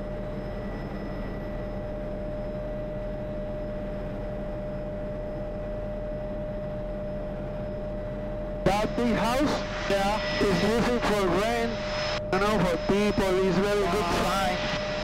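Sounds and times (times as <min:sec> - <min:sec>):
helicopter turbine whine: 0:00.0 - 0:15.0
low rotor and engine hum: 0:00.0 - 0:15.0.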